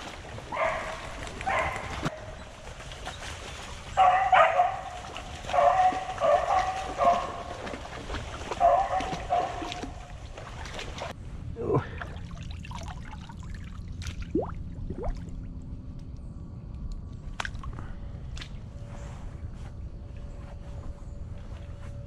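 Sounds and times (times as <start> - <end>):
hounds baying: 0.4 - 2.6, 3.9 - 7.9, 8.5 - 10.2.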